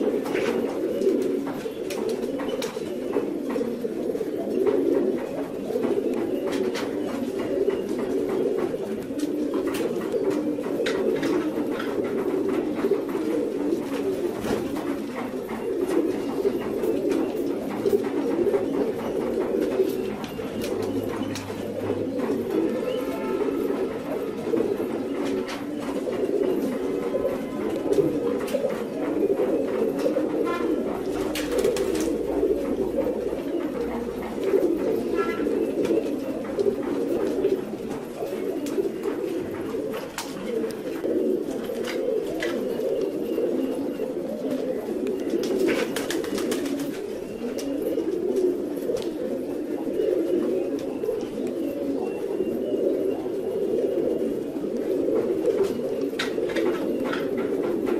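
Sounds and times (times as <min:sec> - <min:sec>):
pigeons cooing: 0:00.0 - 0:57.9.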